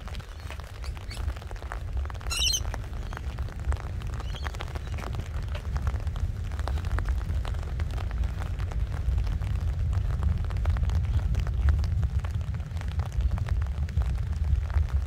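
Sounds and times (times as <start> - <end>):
wind buffeting microphone: 0.0 - 15.0
bird warbling call: 2.2 - 3.3, 4.2 - 5.1.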